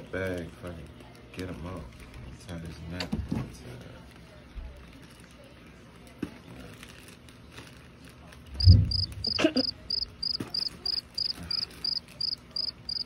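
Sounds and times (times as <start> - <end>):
plastic bag rustling: 6.5 - 10.0
low thump: 8.6 - 9.2
cricket chirping: 8.6 - 13.0.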